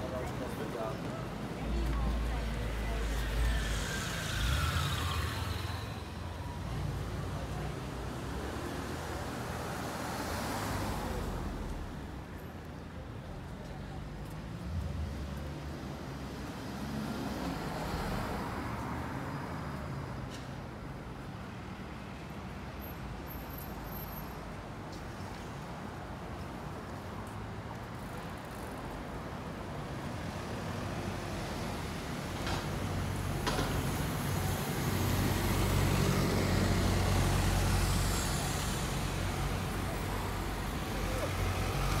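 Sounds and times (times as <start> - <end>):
low rumble of traffic: 0.0 - 42.0
car tyre hiss passing: 3.0 - 6.6.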